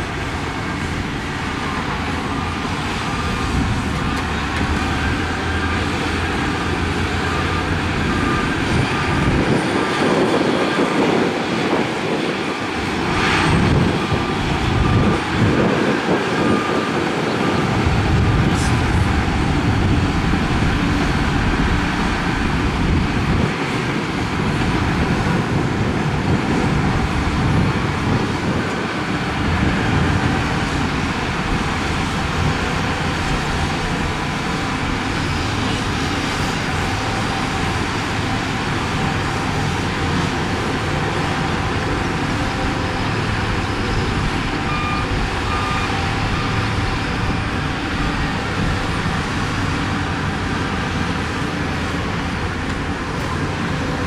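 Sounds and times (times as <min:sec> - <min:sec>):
heavy diesel engines running: 0:00.0 - 0:54.0
backup alarm beeping: 0:44.6 - 0:46.6.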